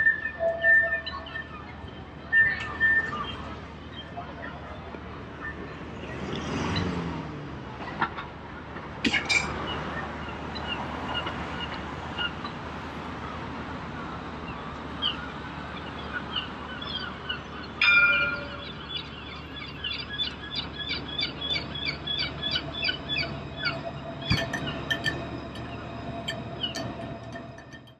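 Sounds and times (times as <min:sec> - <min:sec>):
city street hum: 0:00.0 - 0:27.9
crossing signal chirping: 0:17.8 - 0:27.9.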